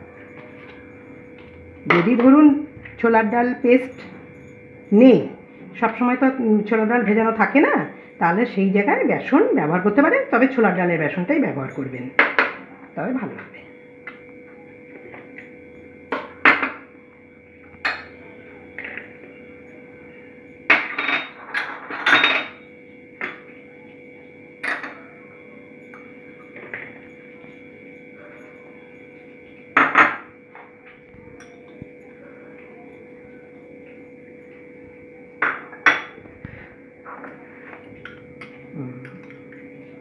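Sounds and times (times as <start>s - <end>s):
faint steady hum: 0.0s - 40.0s
glass bowls clinking on plastic bowl: 20.7s - 23.5s, 24.6s - 25.1s, 35.4s - 36.2s.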